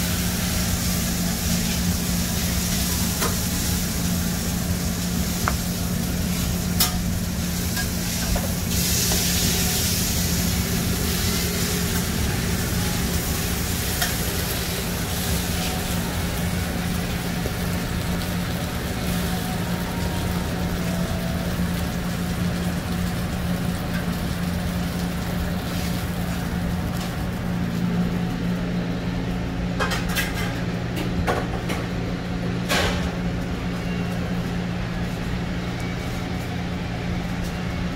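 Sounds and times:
burger patties sizzling on griddle: 0.0 - 27.5
low hum of kitchen equipment: 0.0 - 37.9.

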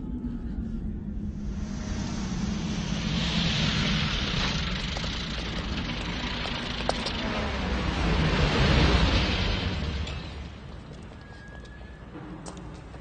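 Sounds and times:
low rumble: 0.0 - 11.2
rushing hiss: 1.5 - 6.4.

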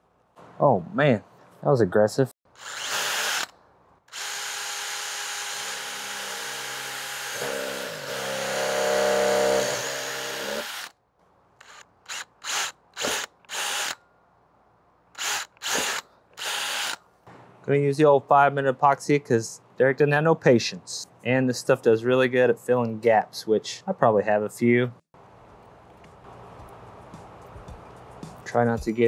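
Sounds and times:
cordless drill whirring: 2.6 - 3.5, 4.1 - 10.9, 11.6 - 14.0, 15.2 - 17.0.

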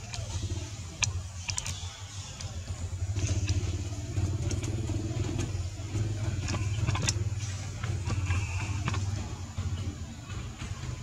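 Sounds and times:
faint clicks: 0.0 - 2.6, 3.2 - 5.6
engine humming: 0.0 - 11.0.

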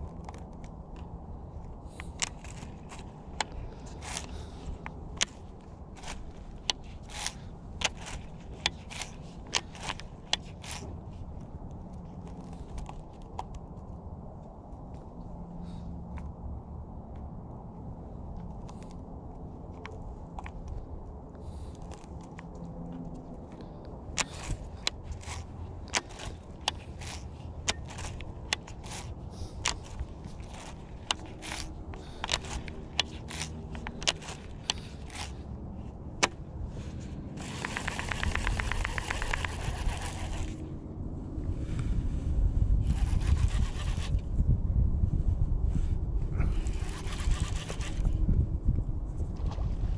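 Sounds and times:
fishing reel clicks and ticks: 2.0 - 10.9, 24.2 - 35.4, 37.4 - 40.6, 42.9 - 44.2, 46.6 - 48.1
fishing reel cranking whir: 2.0 - 11.0, 24.2 - 35.4, 37.4 - 40.7, 42.8 - 44.2, 46.4 - 48.2.

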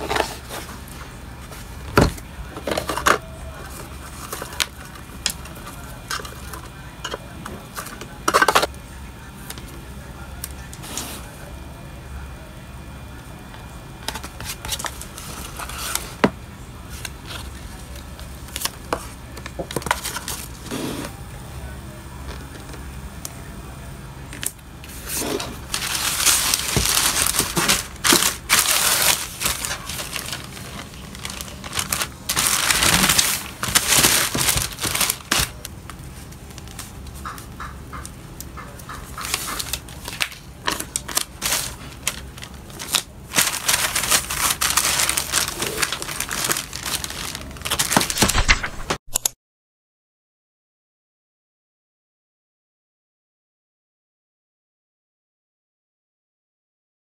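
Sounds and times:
plastic mailer bag crinkling: 0.0 - 8.7, 14.0 - 16.3, 16.9 - 20.8, 25.0 - 37.4, 38.9 - 49.2.

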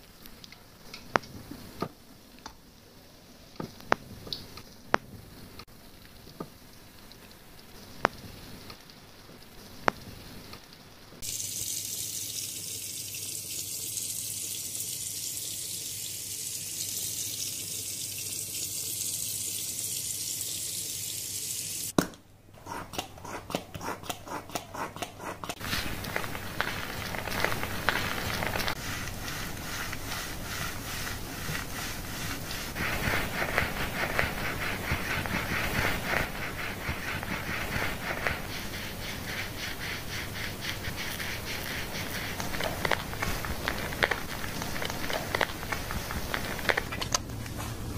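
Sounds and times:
running water hissing: 5.4 - 22.0, 22.7 - 47.0
shampoo foam squishing in hair: 25.5 - 47.1.

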